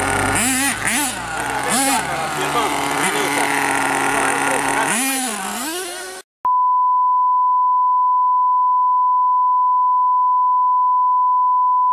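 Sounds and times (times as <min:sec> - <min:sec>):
toy truck motor whining: 0:00.0 - 0:06.3.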